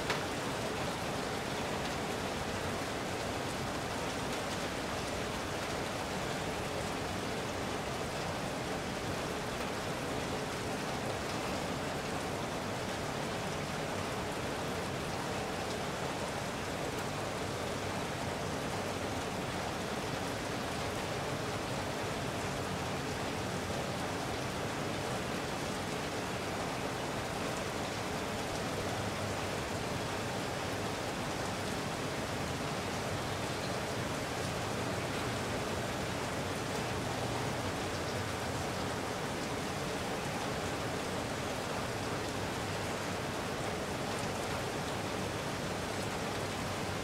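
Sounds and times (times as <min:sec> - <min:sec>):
rain falling steadily: 0:00.0 - 0:47.0.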